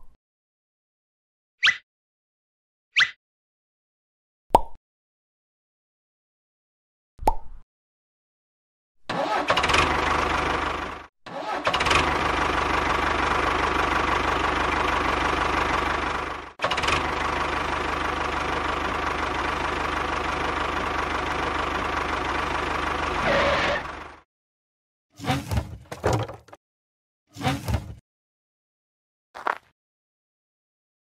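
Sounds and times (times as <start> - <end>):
tractor engine chugging: 9.1 - 24.2.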